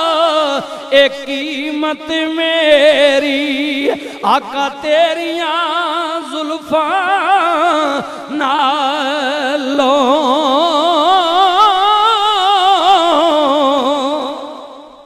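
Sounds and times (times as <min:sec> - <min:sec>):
man singing with vibrato: 0:00.0 - 0:15.0.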